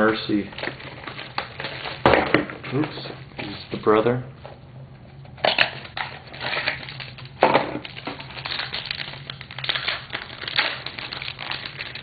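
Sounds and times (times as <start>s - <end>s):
wrapper tearing and crinkling: 0.0s - 2.1s, 5.4s - 12.0s.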